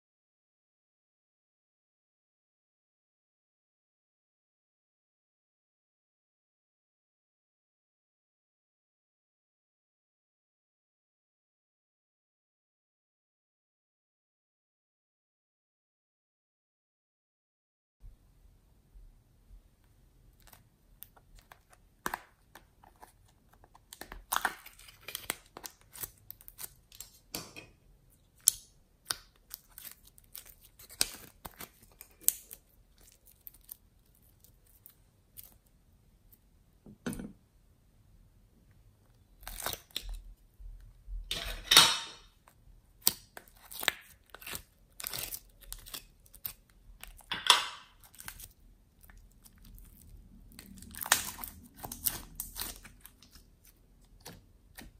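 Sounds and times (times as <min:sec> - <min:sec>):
slime squelching and popping: 0:20.3 - 0:27.3, 0:28.2 - 0:35.6, 0:39.2 - 0:40.3, 0:42.4 - 0:54.9.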